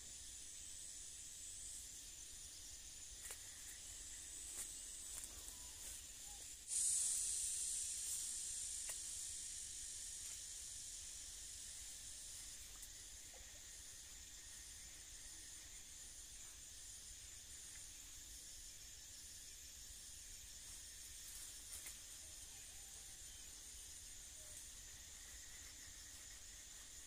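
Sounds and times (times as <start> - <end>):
loud hiss: 0.0 - 18.0
steady high-pitched hiss: 0.0 - 27.0.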